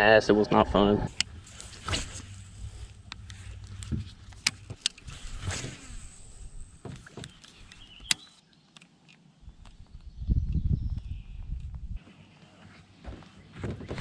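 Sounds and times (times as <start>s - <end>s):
wind rumble on microphone: 9.5s - 12.0s.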